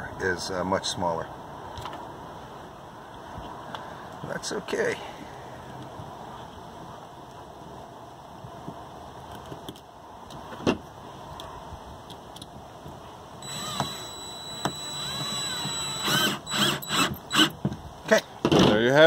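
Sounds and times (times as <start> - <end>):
cordless drill whining: 13.4 - 17.6.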